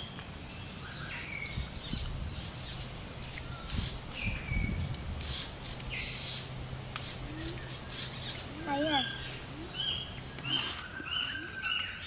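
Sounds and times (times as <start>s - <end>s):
birds whistling: 0.0s - 12.0s
high bird chirps: 0.7s - 12.0s.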